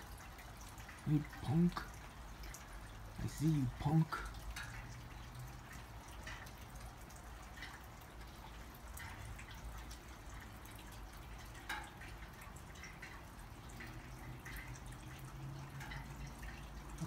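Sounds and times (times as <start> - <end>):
water dripping: 0.0 - 17.0.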